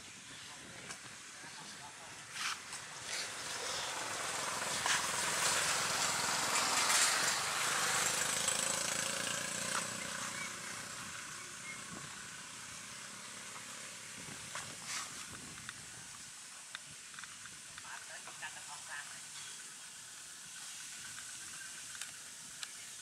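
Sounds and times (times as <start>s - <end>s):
passing engine hum: 1.9s - 14.5s.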